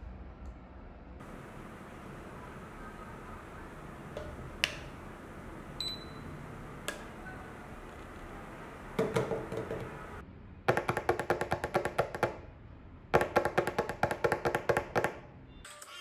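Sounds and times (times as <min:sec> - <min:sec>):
fingers drumming on a tabletop: 0:08.8 - 0:12.4, 0:13.2 - 0:15.2.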